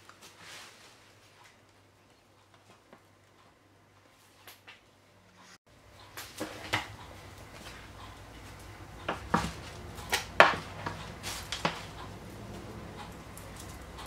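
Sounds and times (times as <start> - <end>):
dough knocking and scraping on tray: 8.5 - 12.2.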